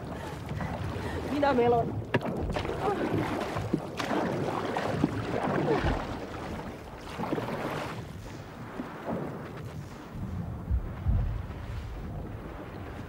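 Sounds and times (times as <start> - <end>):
paddles splashing in water: 0.0 - 13.0
wind noise: 4.4 - 13.0.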